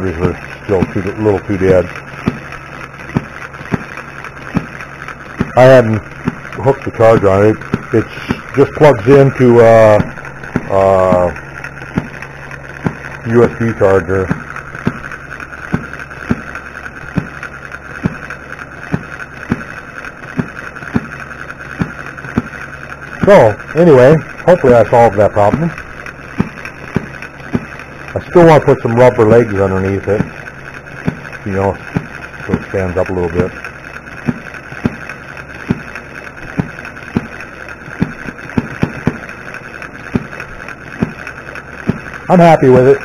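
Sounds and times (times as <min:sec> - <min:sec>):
model gas engine running: 0:00.0 - 0:43.0
engine firing pops: 0:02.2 - 0:03.9, 0:04.5 - 0:15.1, 0:15.7 - 0:21.2, 0:26.3 - 0:27.8, 0:34.1 - 0:39.3, 0:40.1 - 0:42.1.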